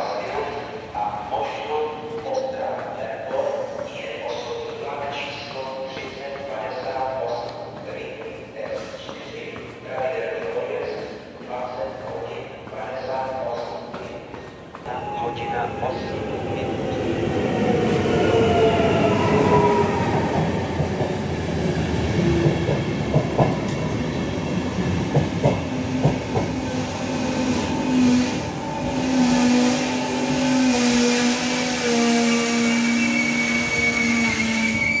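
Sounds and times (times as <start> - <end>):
train wheels rumbling and clattering: 0.0 - 31.8
wheels and brakes squealing: 32.3 - 35.0.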